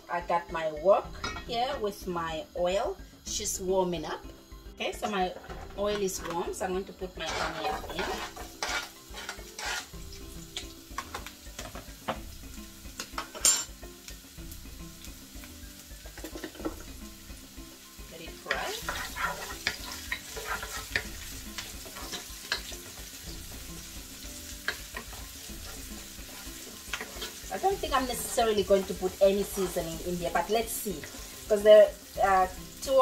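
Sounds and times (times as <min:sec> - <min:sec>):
onion sizzling in oil: 0:00.2 - 0:33.0
utensil scraping pan: 0:07.1 - 0:10.0, 0:18.4 - 0:23.0, 0:24.6 - 0:29.8.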